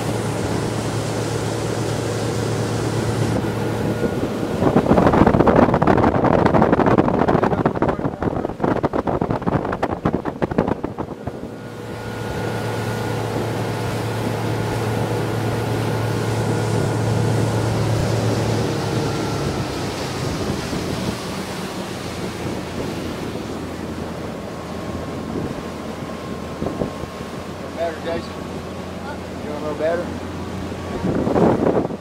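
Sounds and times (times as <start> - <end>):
boat motor running: 0.0 - 32.0
water rushing: 0.0 - 32.0
wind rushing: 2.2 - 25.8, 30.5 - 32.0.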